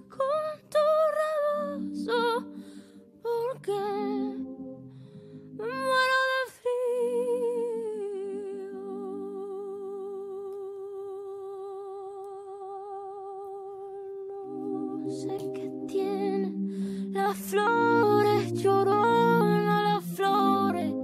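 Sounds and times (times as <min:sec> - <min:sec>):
slow song with held vibrato note: 0:00.0 - 0:21.0
soft low accompaniment chords: 0:01.6 - 0:06.4, 0:14.4 - 0:21.0.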